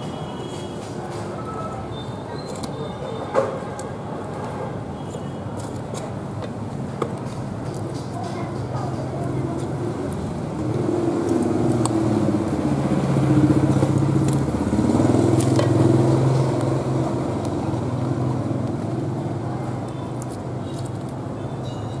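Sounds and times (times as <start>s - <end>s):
vehicle engine humming: 9.0s - 21.6s.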